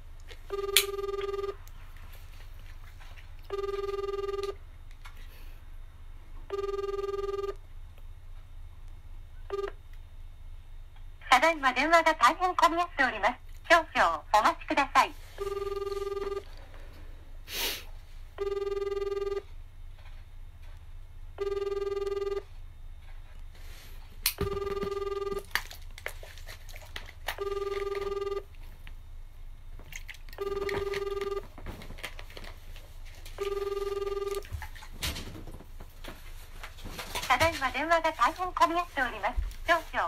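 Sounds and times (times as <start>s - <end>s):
telephone ringback tone: 0.5s - 1.6s, 3.5s - 4.6s, 6.5s - 7.6s, 9.5s - 9.8s, 15.3s - 16.6s, 18.4s - 19.5s, 21.4s - 22.6s, 24.4s - 25.4s, 27.4s - 28.5s, 30.4s - 31.6s, 33.4s - 34.5s.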